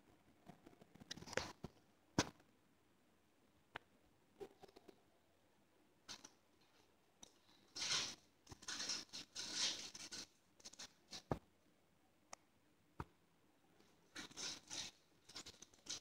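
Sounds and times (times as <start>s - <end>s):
dry scratching and crackling: 6.1s - 11.4s, 13.8s - 16.0s.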